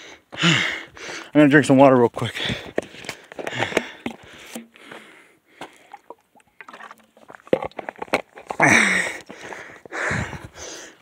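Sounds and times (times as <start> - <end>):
heavy breathing: 0.0 - 1.3, 2.4 - 6.0, 8.6 - 11.0
person gulping from a bottle: 3.4 - 10.5
liquid sloshing: 3.8 - 8.6.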